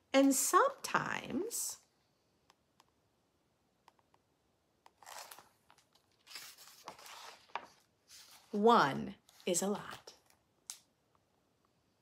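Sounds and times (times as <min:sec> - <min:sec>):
paper page turning: 0:04.9 - 0:08.6.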